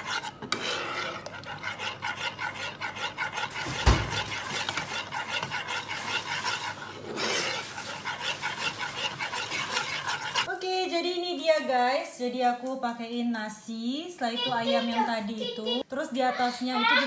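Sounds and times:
spoon scraping saucepan: 0:00.0 - 0:10.5.

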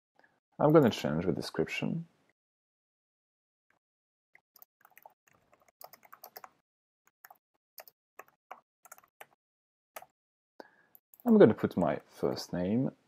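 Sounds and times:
computer keyboard typing: 0:04.6 - 0:06.6, 0:07.2 - 0:09.4, 0:11.0 - 0:12.4.

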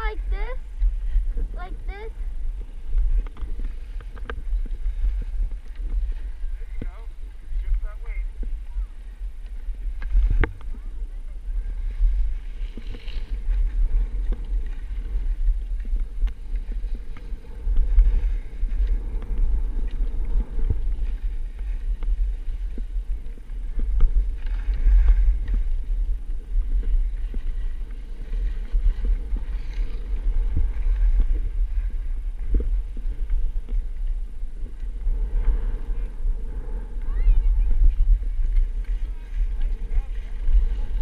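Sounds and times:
skis scraping over snow: 0:00.0 - 0:41.0
wind buffeting microphone: 0:00.0 - 0:41.0.

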